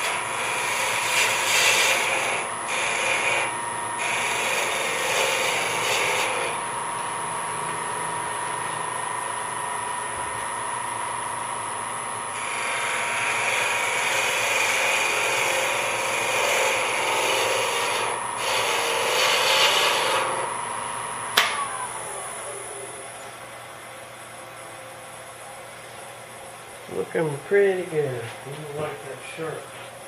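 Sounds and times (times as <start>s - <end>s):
turning tool scraping wood: 0.0s - 6.6s, 12.4s - 20.6s
wood lathe motor whine: 0.0s - 23.6s.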